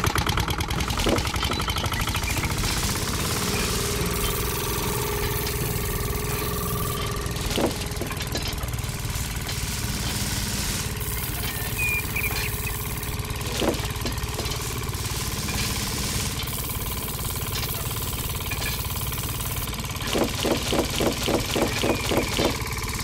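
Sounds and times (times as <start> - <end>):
small electric motor droning: 0.0 - 23.0
sharp clicks: 15.5 - 22.7.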